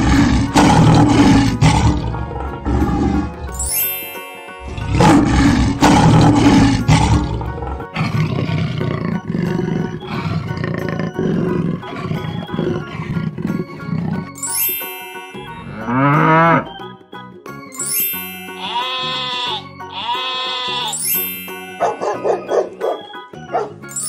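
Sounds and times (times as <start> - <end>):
big cat roaring: 0.0 - 3.5, 4.6 - 14.4
upbeat children's music: 1.9 - 8.1, 8.7 - 24.0
cow mooing: 4.6 - 14.4, 15.7 - 16.8, 18.6 - 21.1.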